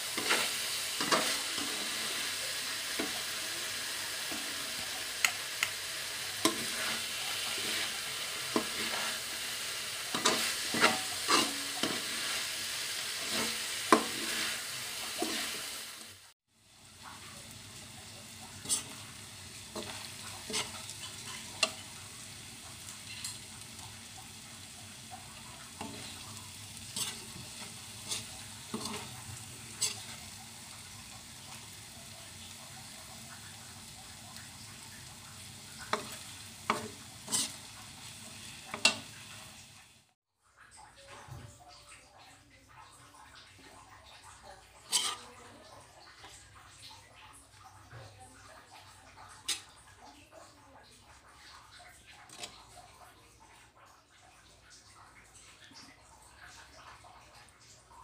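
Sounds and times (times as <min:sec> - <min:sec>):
spatula scraping a pan: 0:00.0 - 0:04.9, 0:06.1 - 0:15.8, 0:18.5 - 0:22.1, 0:24.3 - 0:31.0, 0:35.0 - 0:39.6, 0:44.8 - 0:45.4
vegetables sizzling in a wok: 0:00.0 - 0:40.2, 0:44.3 - 0:50.1, 0:52.2 - 0:52.8.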